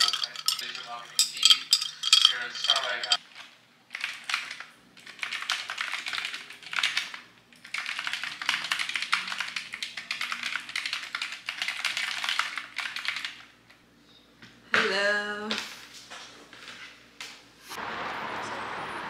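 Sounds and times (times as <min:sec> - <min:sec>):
typing on computer keyboard: 0:03.9 - 0:13.5.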